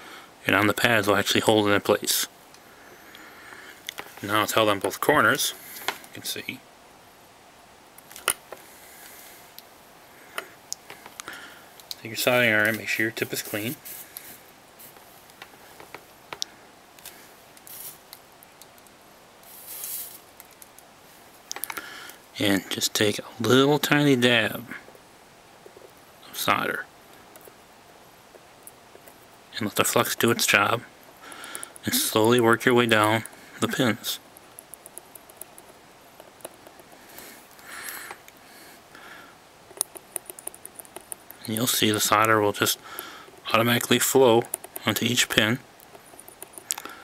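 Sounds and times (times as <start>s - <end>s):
soft hisses: 0.0s - 6.6s, 8.4s - 18.3s, 19.4s - 20.4s, 21.0s - 24.9s, 29.4s - 34.2s, 41.4s - 45.6s
soldering tools scraping and clicking: 34.3s - 38.4s, 39.7s - 46.9s.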